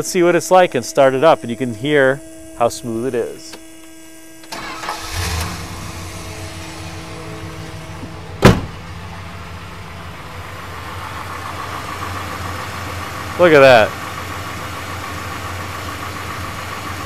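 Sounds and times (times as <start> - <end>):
car engine idling: 0.0 - 17.0
car door slamming: 5.2 - 9.2.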